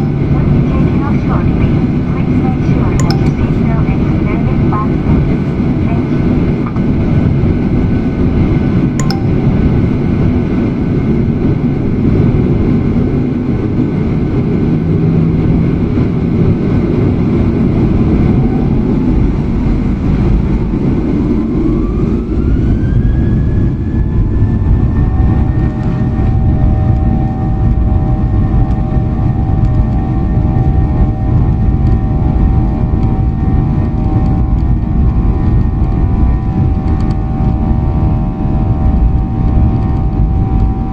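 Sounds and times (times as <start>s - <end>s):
jet engine whine: 0.0s - 40.9s
jet engines rumbling: 0.0s - 40.9s.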